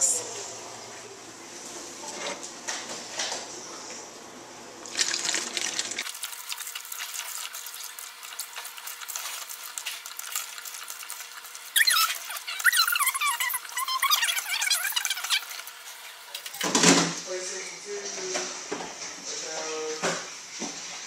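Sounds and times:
liquid pouring trickle: 4.8s - 13.8s
high squeaky chirps: 11.7s - 15.6s.

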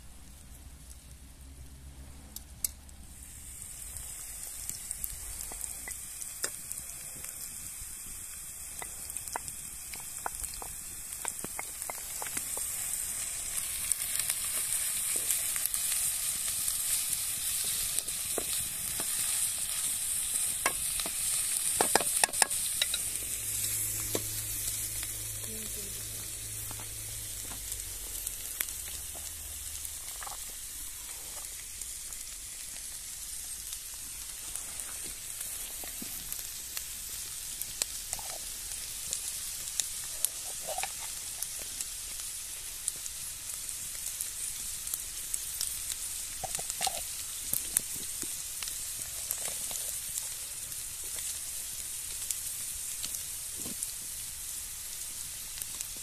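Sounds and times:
food sizzling in a pan: 0.0s - 56.0s
sharp clicks and pops: 8.7s - 12.8s.

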